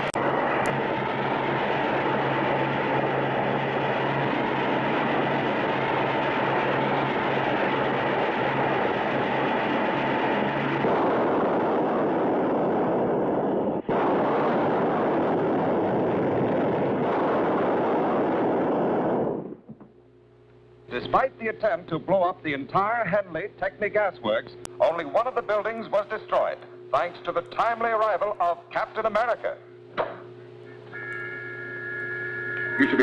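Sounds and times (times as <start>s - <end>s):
fire roaring: 0.0s - 19.8s
low hum: 0.0s - 33.0s
whistle-like tone: 30.7s - 33.0s.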